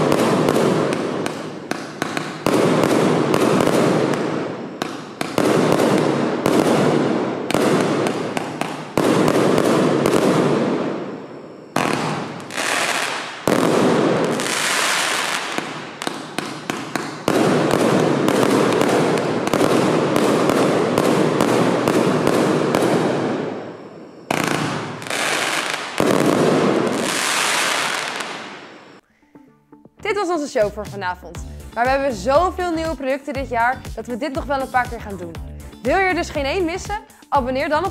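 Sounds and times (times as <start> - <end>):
firework cake firing: 0.0 - 11.2, 11.8 - 23.7, 24.3 - 29.0.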